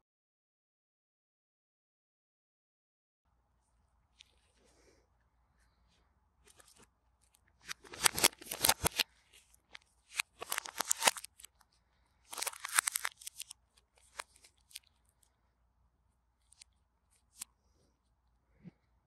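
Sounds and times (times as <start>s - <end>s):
plastic film crinkling: 7.6s - 11.6s, 12.3s - 15.0s.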